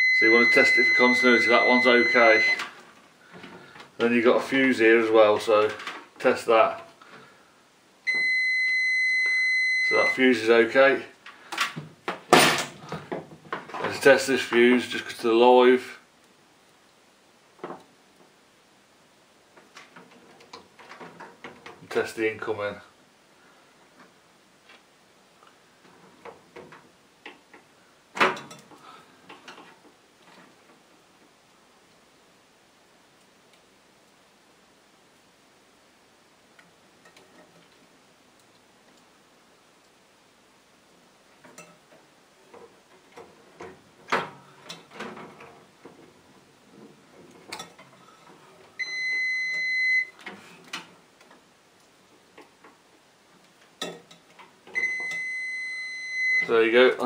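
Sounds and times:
multimeter continuity beep: 0:00.0 - 0:02.6, 0:08.1 - 0:10.2, 0:48.8 - 0:50.2, 0:54.8 - 0:56.5.

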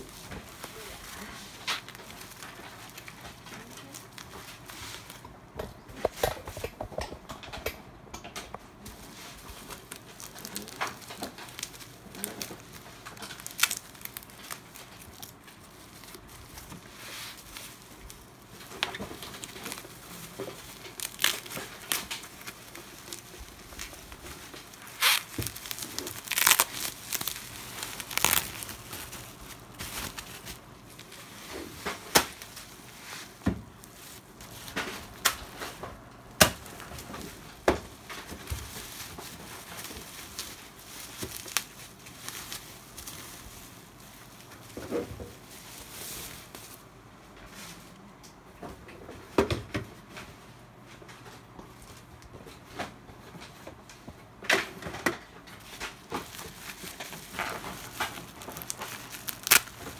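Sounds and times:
bubble wrap crinkling: 0:00.0 - 0:07.6, 0:08.5 - 0:48.1, 0:50.8 - 0:59.9
sharp crackles: 0:09.4 - 0:32.8, 0:56.2 - 0:59.9.

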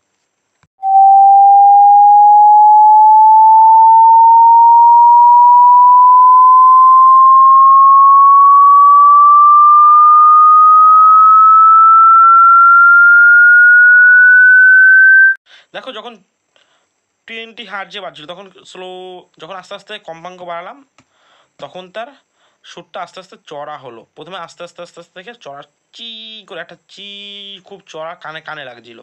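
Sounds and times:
sine wave tone sweeping upward: 0:00.8 - 0:15.4.

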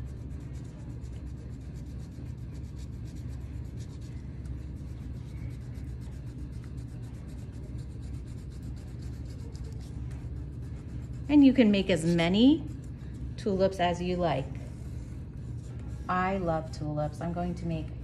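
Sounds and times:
crayon scratching on paper: 0:00.0 - 0:13.3.

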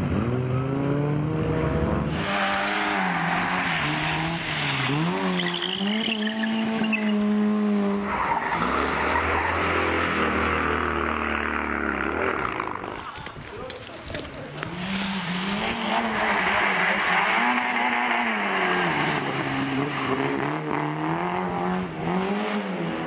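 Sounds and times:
car engine revving: 0:00.0 - 0:13.1, 0:14.6 - 0:23.0
tyre squeal: 0:02.2 - 0:07.3
tyres hissing on wet road: 0:14.7 - 0:20.2.

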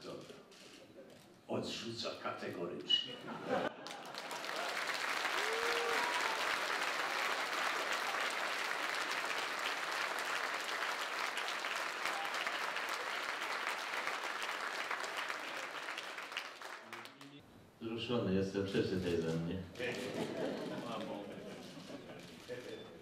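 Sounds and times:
audience applauding: 0:03.7 - 0:17.4.

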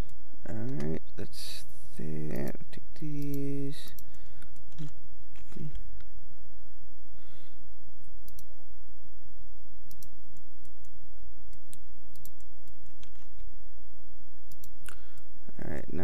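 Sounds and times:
steady low hum: 0:00.0 - 0:16.0
computer mouse clicks: 0:08.2 - 0:08.5, 0:09.9 - 0:13.5, 0:14.5 - 0:15.0.

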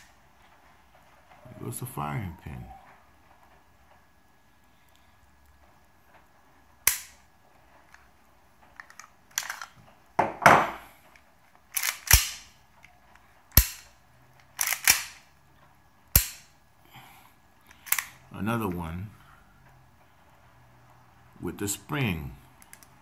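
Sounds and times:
airsoft pistol clicks and clacks: 0:06.9 - 0:07.2, 0:11.1 - 0:12.9, 0:13.5 - 0:15.2, 0:16.1 - 0:16.5, 0:22.6 - 0:23.0.

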